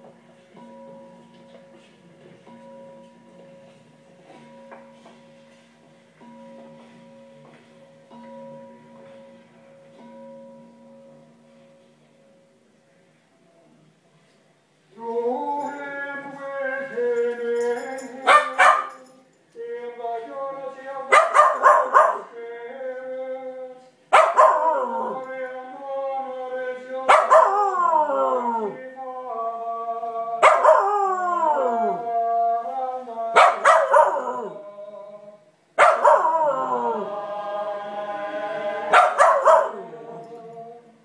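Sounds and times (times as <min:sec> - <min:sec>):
dog barking and howling: 0:18.2 - 0:19.1, 0:21.1 - 0:22.3, 0:24.2 - 0:25.4, 0:27.0 - 0:28.8, 0:30.4 - 0:32.0, 0:33.3 - 0:34.6, 0:35.8 - 0:37.2, 0:38.8 - 0:40.1
man chanting long sung notes: 0:24.6 - 0:41.0.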